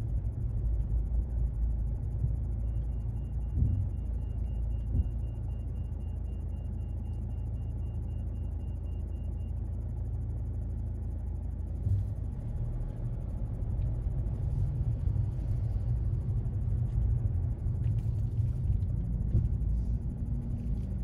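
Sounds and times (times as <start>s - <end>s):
car driving rumble: 0.0s - 5.9s, 11.4s - 21.0s.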